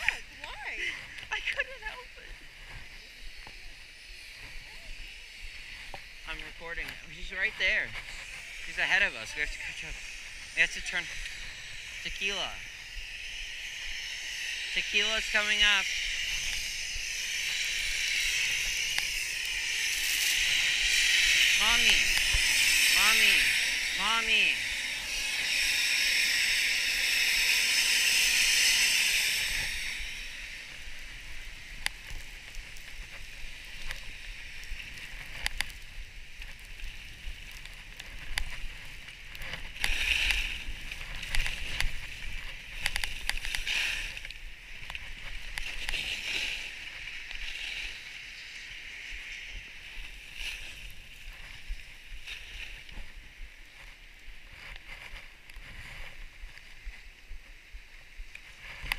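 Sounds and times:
skis hissing over snow: 0.0 - 58.9
ski scraping: 4.2 - 12.9, 14.6 - 48.8.

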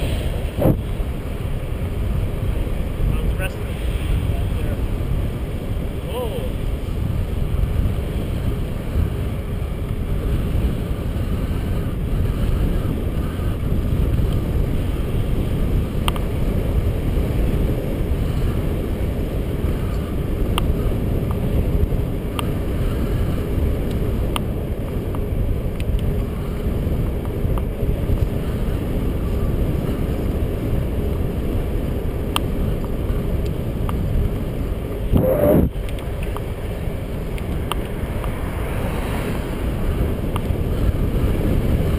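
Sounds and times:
tyre noise on asphalt: 0.0 - 41.9
wind buffeting microphone: 0.0 - 41.9
faint ticks: 16.0 - 16.3.

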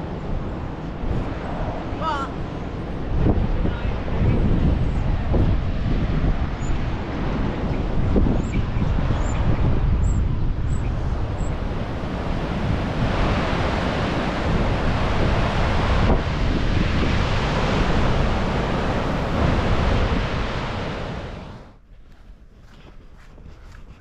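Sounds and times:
wind buffeting microphone: 0.0 - 24.0
surf breaking on rocks: 11.7 - 21.7.

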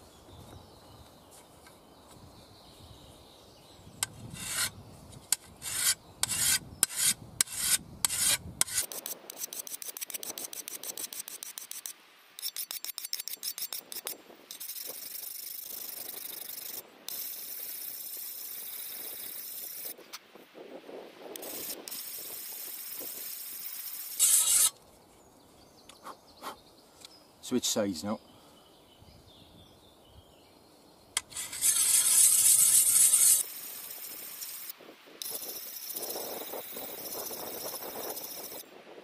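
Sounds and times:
shovel edge sharpened on stone: 4.3 - 4.7, 5.3 - 19.9, 21.4 - 24.7, 31.2 - 38.6.

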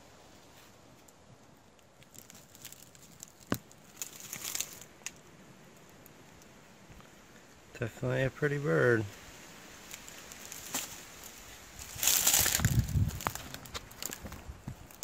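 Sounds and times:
rustling and crackling: 0.0 - 7.1, 9.1 - 15.0.

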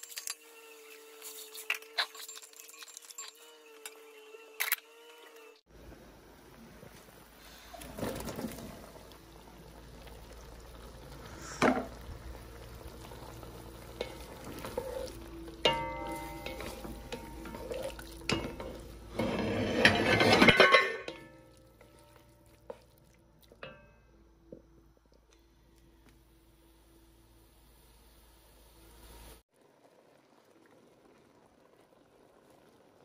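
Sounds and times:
wooden spoon stirring meat in pot: 12.9 - 19.5.

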